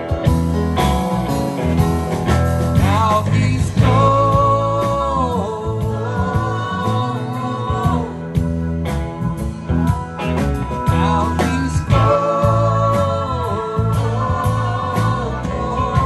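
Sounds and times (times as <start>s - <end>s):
live rock band playing: 0.0s - 16.0s
person singing: 2.8s - 10.0s, 10.7s - 16.0s.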